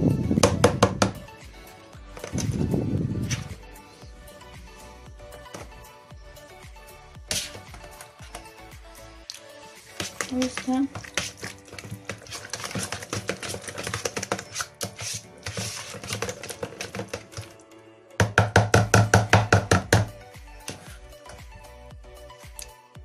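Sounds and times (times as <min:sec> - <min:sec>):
background music with clicking rhythm: 0:00.0 - 0:23.0.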